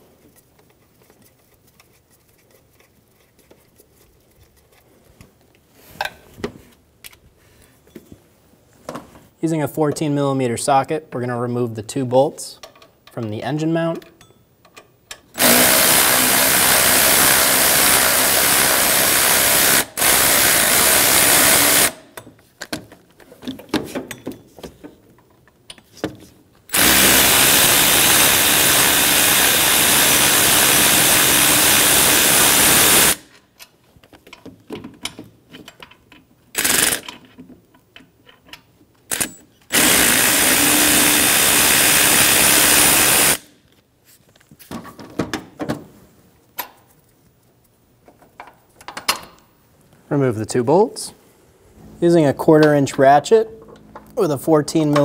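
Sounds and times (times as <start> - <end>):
power tool spinning bolts: 15.4 - 22.0, 26.7 - 33.3, 36.5 - 37.2, 39.1 - 43.4.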